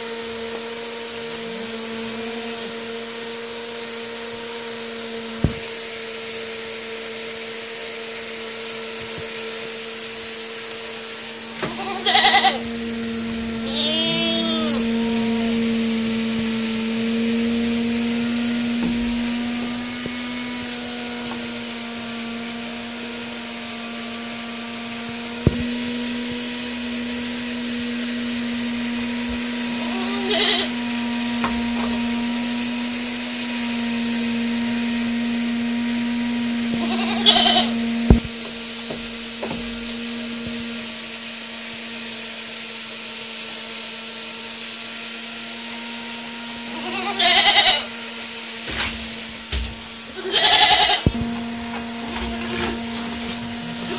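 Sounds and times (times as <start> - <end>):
low machine hum: 10.9 - 42.2, 44.4 - 53.9
goats bleating: 11.7 - 12.7, 13.6 - 15.1, 29.8 - 30.7, 36.8 - 37.8, 46.7 - 47.9, 50.2 - 51.2.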